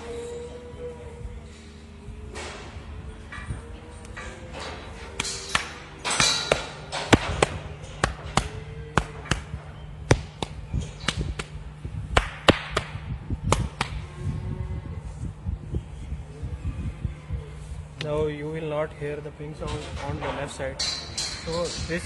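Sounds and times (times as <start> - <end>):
fingers tapping cow's flank: 5.2 - 14.0.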